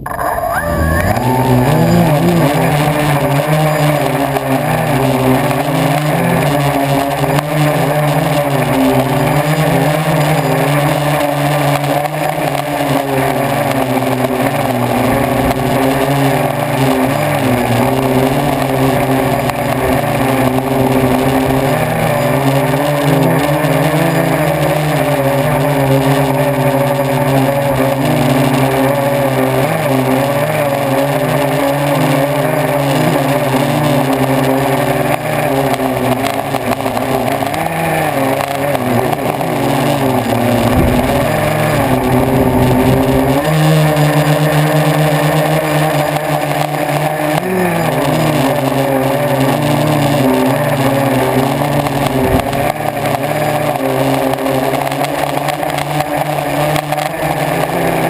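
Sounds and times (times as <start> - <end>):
model jet motor whining: 0.0 - 58.0
wind rush: 40.3 - 43.3.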